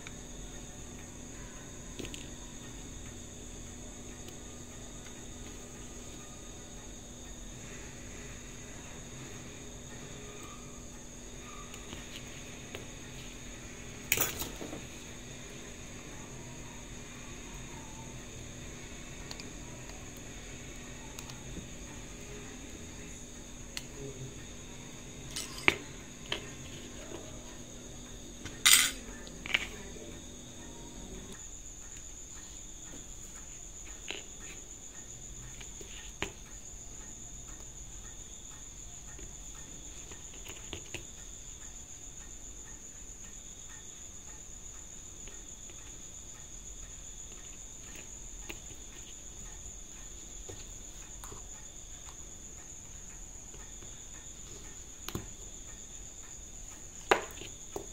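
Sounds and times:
metal tweezers clicking and scraping: 25.3s - 25.8s.

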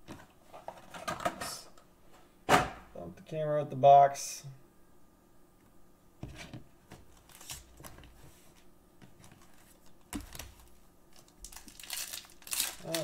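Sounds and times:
foil packs crinkling: 7.2s - 7.9s, 9.3s - 13.0s.

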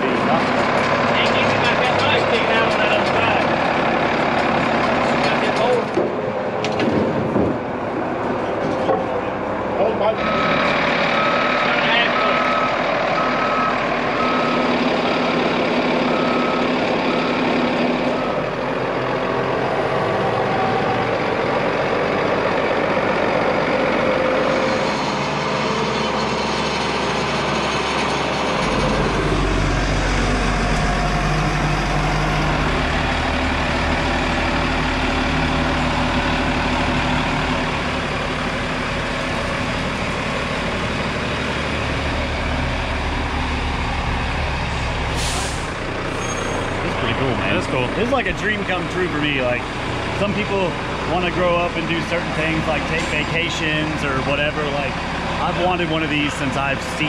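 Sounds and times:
forklift engine running: 0.0s - 57.0s
reversing beeper beeping: 10.1s - 18.6s.

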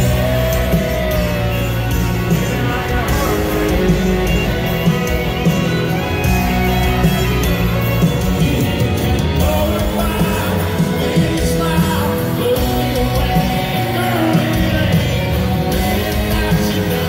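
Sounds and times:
country band playing live: 0.0s - 17.0s
drums: 0.0s - 17.0s
electric guitars: 0.0s - 17.0s
person singing: 8.4s - 17.0s.

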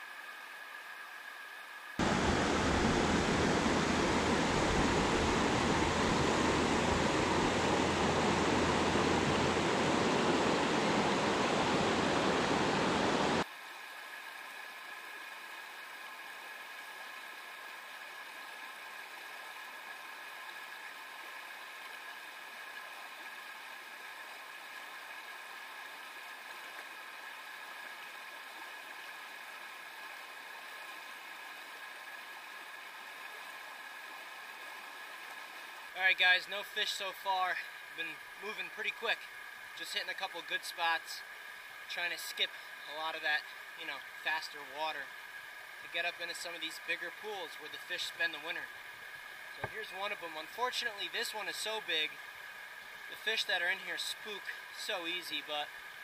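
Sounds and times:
stream running water: 0.0s - 56.0s.

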